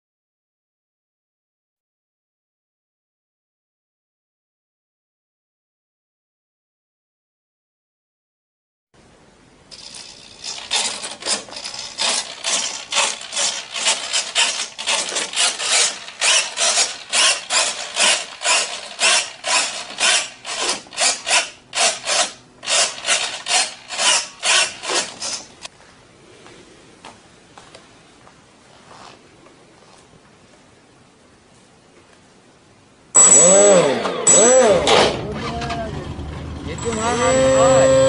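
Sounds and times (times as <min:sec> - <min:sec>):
rasping scraping strokes: 0:09.8 - 0:25.6.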